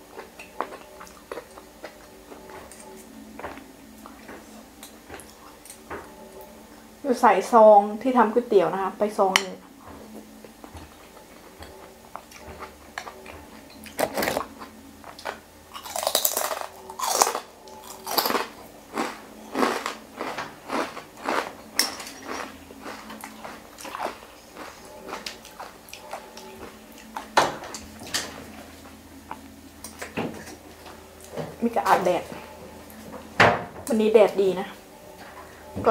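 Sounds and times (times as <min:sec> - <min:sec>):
wet crunchy chewing: 0:00.0 - 0:04.4, 0:11.7 - 0:27.9.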